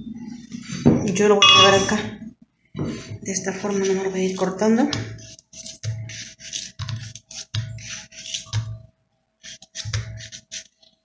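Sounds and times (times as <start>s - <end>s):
knife slicing melon: 5.0s - 8.7s.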